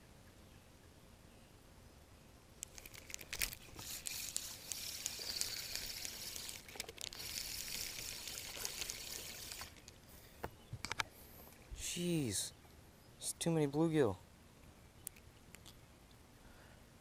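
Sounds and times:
fish splashing at water surface: 0:02.8 - 0:09.9.

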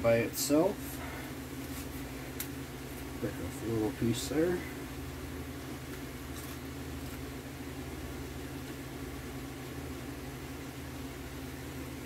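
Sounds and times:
low mechanical hum: 0:00.0 - 0:12.0
cracker crunching: 0:05.8 - 0:07.3.

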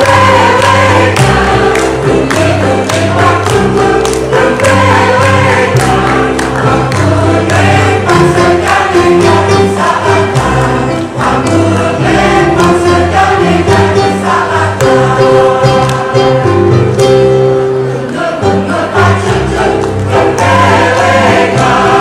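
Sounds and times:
electronic keyboard accompaniment: 0:00.0 - 0:22.0
mixed choir singing: 0:00.0 - 0:22.0.

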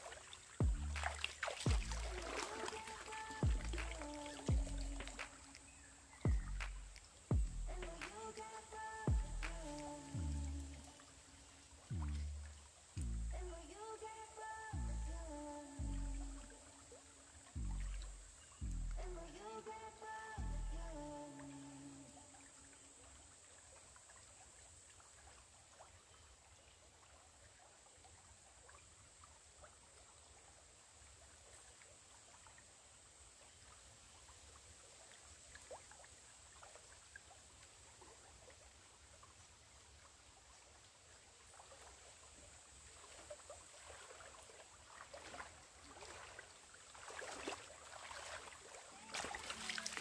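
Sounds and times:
feet wading through water: 0:00.0 - 0:13.0, 0:21.4 - 0:50.0
water splashed over body: 0:00.0 - 0:13.1, 0:34.5 - 0:50.0
stream trickling: 0:00.0 - 0:50.0.

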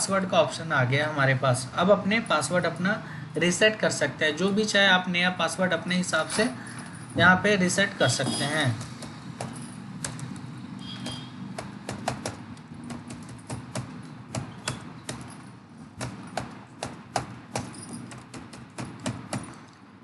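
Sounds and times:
keyboard keys clicking: 0:08.7 - 0:15.4.

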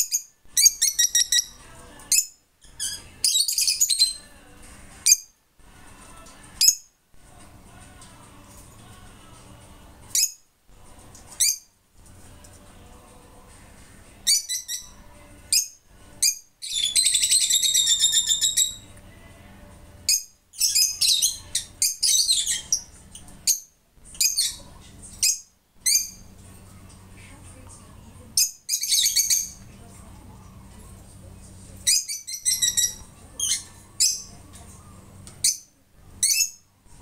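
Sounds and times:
lovebirds squeaking: 0:00.0 - 0:05.3, 0:06.3 - 0:06.9, 0:10.1 - 0:10.4, 0:11.0 - 0:11.7, 0:14.2 - 0:19.0, 0:20.0 - 0:26.5, 0:28.3 - 0:29.8, 0:30.6 - 0:36.7.

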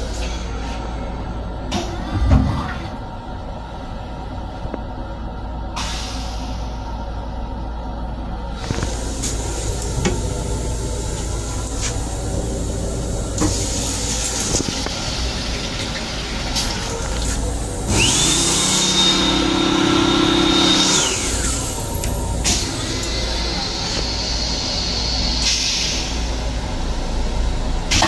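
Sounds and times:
train rumble: 0:00.0 - 0:19.3, 0:19.9 - 0:28.0
hand dryer whining: 0:16.8 - 0:24.1.

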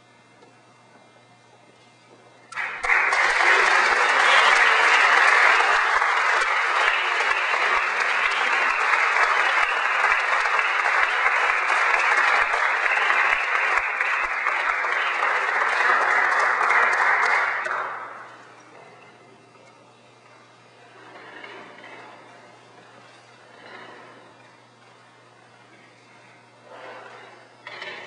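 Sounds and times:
audience applauding: 0:02.5 - 0:18.6.

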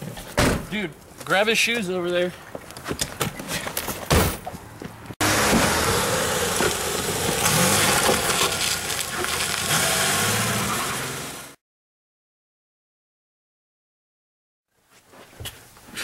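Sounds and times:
car door slamming: 0:00.4 - 0:00.7, 0:05.3 - 0:08.3
car engine running: 0:05.2 - 0:11.6.

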